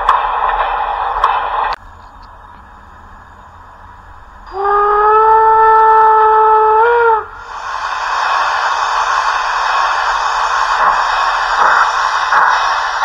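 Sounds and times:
steam hissing: 0.0s - 1.8s, 2.7s - 13.0s
steam whistle blast: 4.5s - 7.9s.

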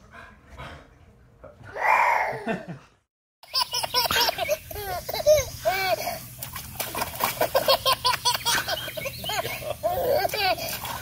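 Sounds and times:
toddler squealing and laughing: 3.5s - 6.2s.

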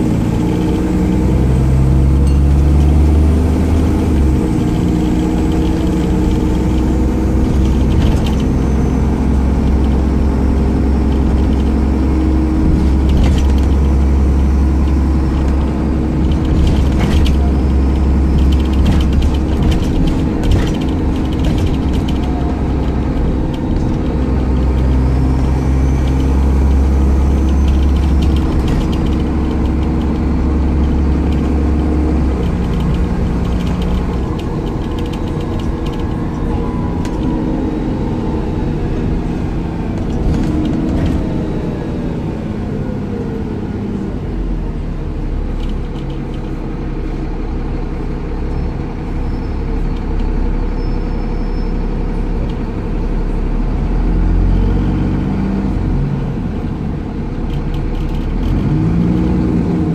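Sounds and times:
bus diesel engine: 0.0s - 59.9s
interior fittings rattling: 11.0s - 36.4s.

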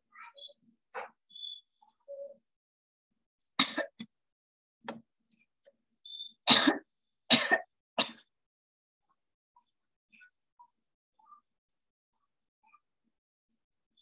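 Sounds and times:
person coughing: 6.5s - 8.3s.

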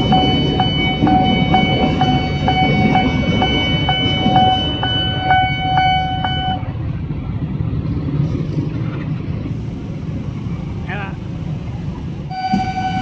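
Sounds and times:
level-crossing alarm ringing: 0.0s - 6.7s, 12.3s - 13.0s
electric train rumbling past: 0.0s - 13.0s.

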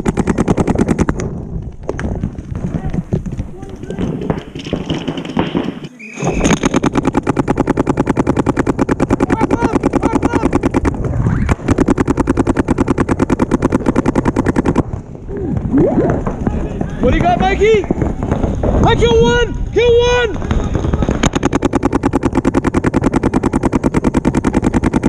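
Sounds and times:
paintball gun rapid firing: 0.0s - 15.0s, 20.3s - 25.0s.

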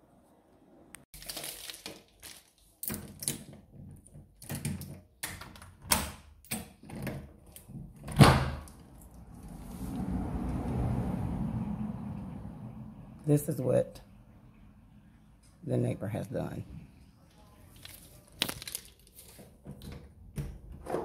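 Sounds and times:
phone rustling against plastic bag: 1.2s - 2.8s, 17.7s - 19.4s.

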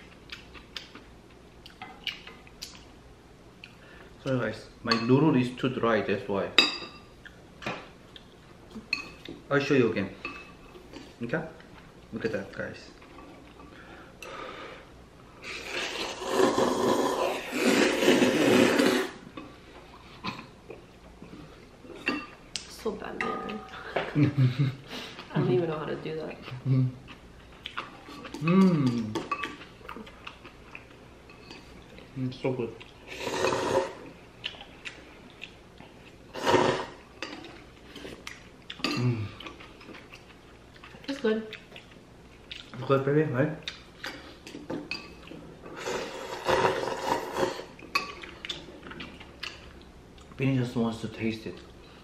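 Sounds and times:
man slurping noodles: 15.4s - 19.2s, 33.1s - 34.0s, 36.3s - 37.0s, 45.8s - 47.7s.

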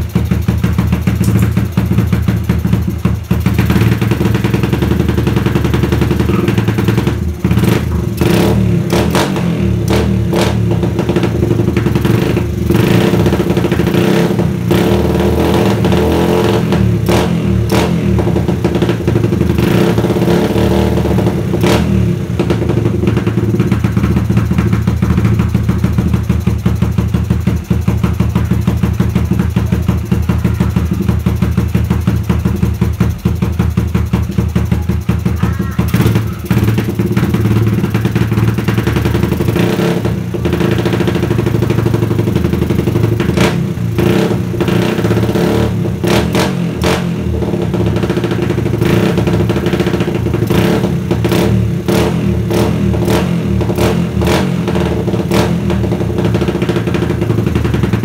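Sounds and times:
motorcycle engine idling: 0.0s - 58.0s
engine revving blips: 5.6s - 11.3s.

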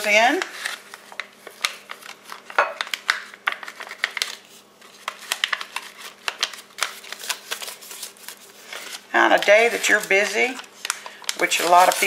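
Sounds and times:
seasoning packet crinkling: 0.0s - 12.0s.

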